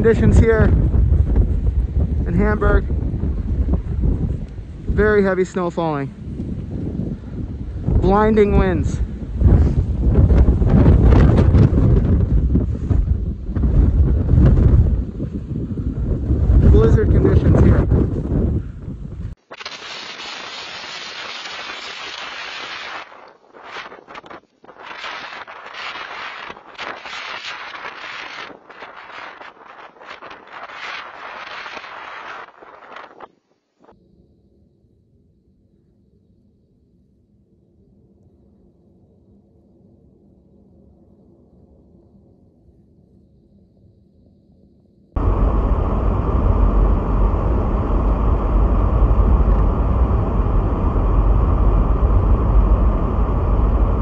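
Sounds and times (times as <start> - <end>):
wind gusting over microphone: 0.0 - 34.0, 45.2 - 54.0
car cabin road rumble: 45.2 - 54.0.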